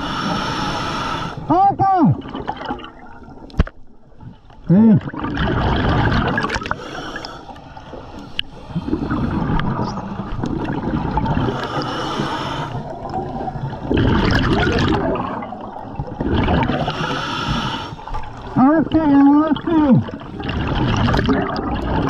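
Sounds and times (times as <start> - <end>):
diver breathing through regulator: 0.0 - 1.5, 6.6 - 9.9, 11.3 - 13.1, 16.7 - 18.1
bubbles gurgling underwater: 4.8 - 6.8, 8.7 - 11.8, 12.8 - 17.0, 18.1 - 22.0.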